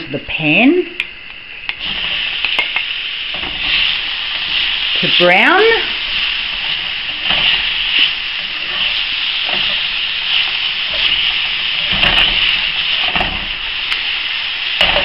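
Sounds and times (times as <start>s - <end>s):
meat sizzling in oil: 1.2s - 15.0s
spatula scraping pan: 6.1s - 13.6s.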